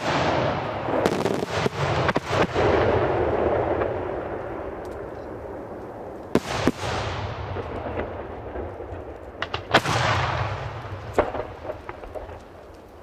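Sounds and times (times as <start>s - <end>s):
sharp firework bangs: 0.0s - 4.2s, 6.3s - 8.6s, 9.4s - 12.4s.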